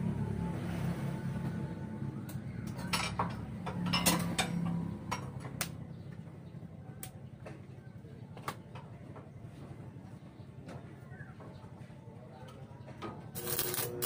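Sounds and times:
low engine hum: 0:00.0 - 0:07.9.

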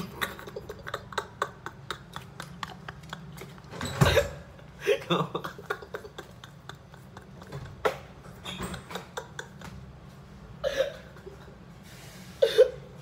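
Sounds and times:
man gasping laughter: 0:04.7 - 0:07.5.

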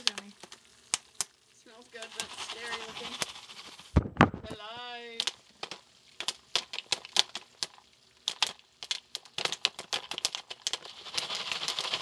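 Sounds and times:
popcorn kernels popping: 0:00.0 - 0:12.0
hiss: 0:01.9 - 0:04.0, 0:08.4 - 0:12.0.

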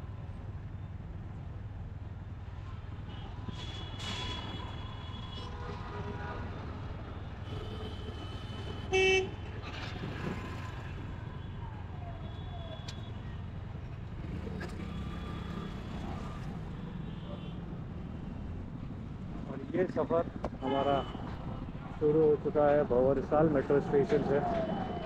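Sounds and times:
engines rumbling in traffic: 0:00.0 - 0:25.0
vehicle horns: 0:03.1 - 0:10.4, 0:14.2 - 0:18.2, 0:20.4 - 0:21.8.

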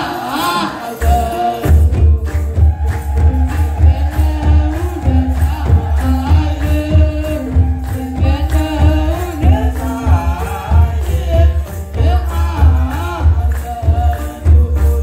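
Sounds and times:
group chanting a hymn in unison: 0:00.0 - 0:01.7, 0:02.6 - 0:13.6
hand drum beating steady rhythm: 0:00.0 - 0:15.0.

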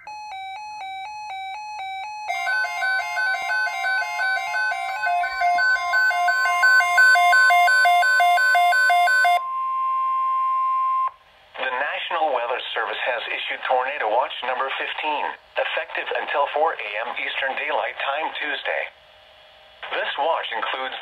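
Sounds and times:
alternating two-tone chime: 0:00.0 - 0:10.0
steady high attention tone: 0:00.0 - 0:11.2.

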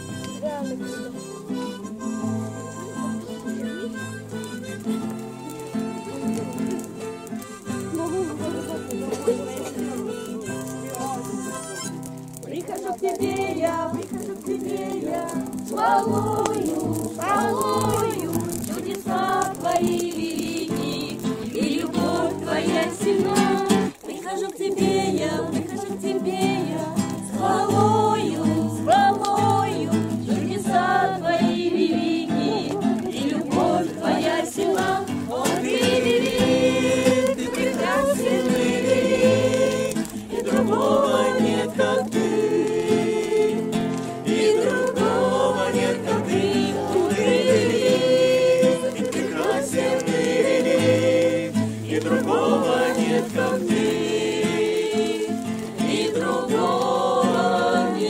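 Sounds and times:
acoustic guitar: 0:00.0 - 0:58.0
group singing together: 0:12.4 - 0:58.0.

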